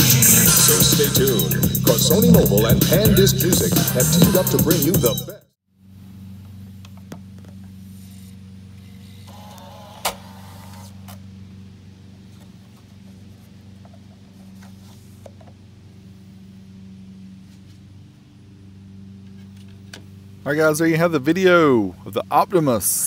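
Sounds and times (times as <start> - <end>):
low electrical hum: 5.7 - 23.0
disc loading motor whirring: 8.7 - 11.2.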